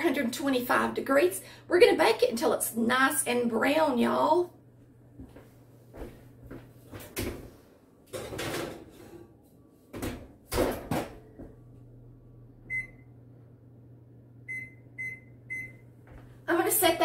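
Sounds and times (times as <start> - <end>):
oven door opening and shutting: 8.1 - 9.3
control panel beeps: 12.7 - 13.0, 14.5 - 15.8.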